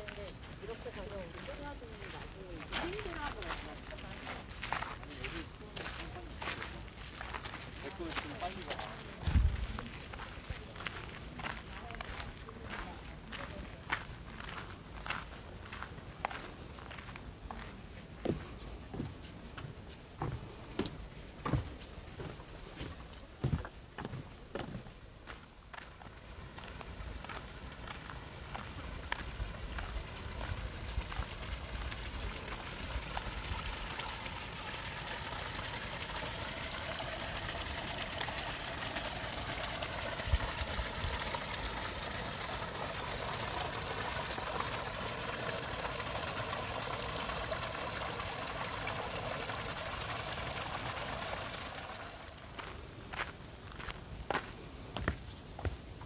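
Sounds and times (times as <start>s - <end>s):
footsteps: 0.0s - 35.0s, 52.5s - 56.0s
water trickling: 25.9s - 53.3s.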